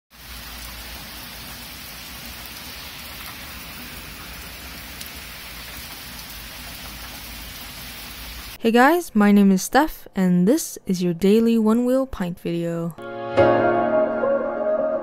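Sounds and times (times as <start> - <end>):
heavy rain on trees and grass: 0.1 - 8.6.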